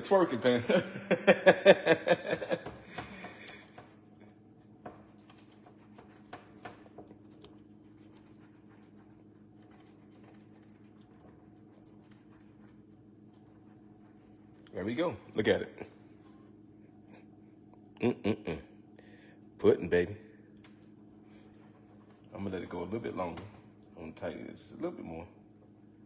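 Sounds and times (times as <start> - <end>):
faint steady hum: 0.0 - 26.0
man chuckling: 0.5 - 3.7, 18.0 - 18.8.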